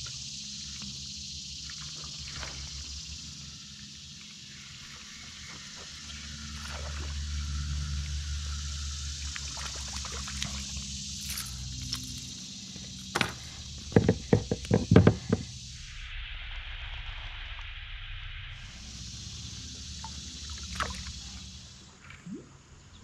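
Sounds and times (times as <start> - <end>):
fish splashing water: 5.0 - 12.4, 19.7 - 21.8.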